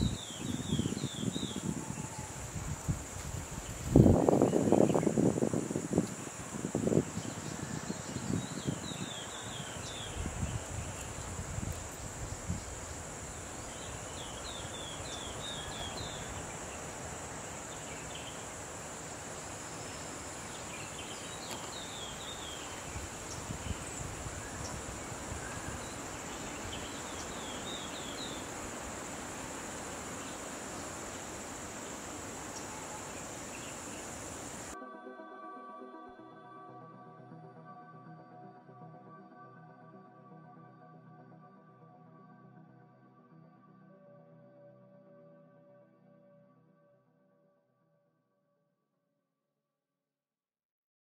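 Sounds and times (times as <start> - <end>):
high insect drone: 0.0 - 34.8.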